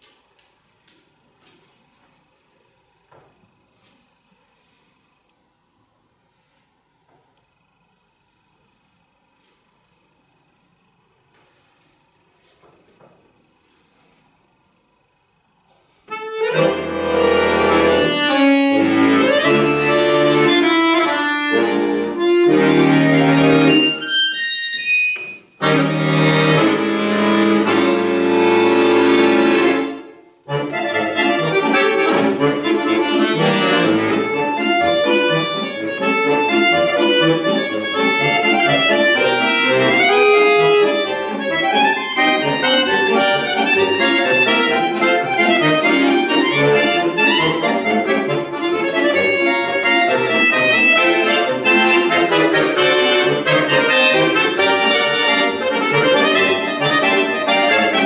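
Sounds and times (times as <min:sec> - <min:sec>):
button accordion playing: 0:15.8 - 0:58.0.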